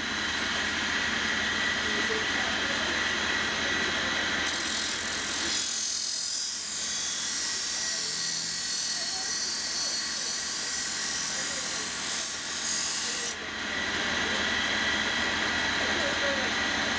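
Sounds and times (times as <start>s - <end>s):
grinder running: 0.0s - 16.9s
high hissing grind of metal: 4.4s - 13.4s.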